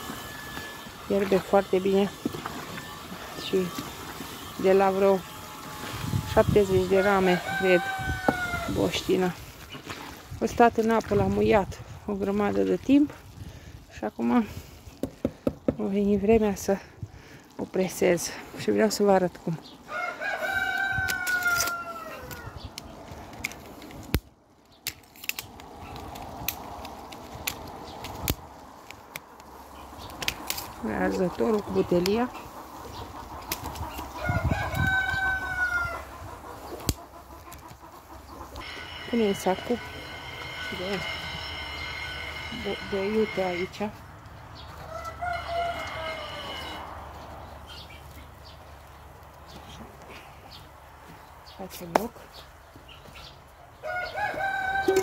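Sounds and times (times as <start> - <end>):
rooster crowing: 7.0 - 8.8, 19.9 - 22.6, 34.2 - 36.2, 38.6 - 43.6, 44.8 - 47.0, 53.8 - 55.0.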